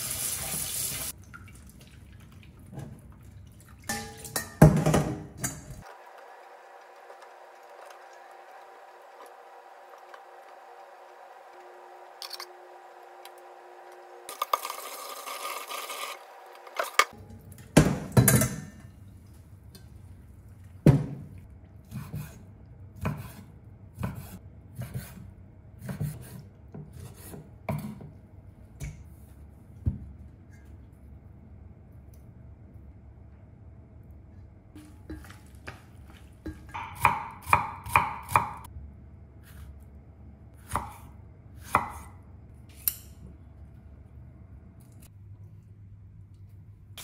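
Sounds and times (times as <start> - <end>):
knocks and scrapes of kitchen utensils: 3.9 - 5.9.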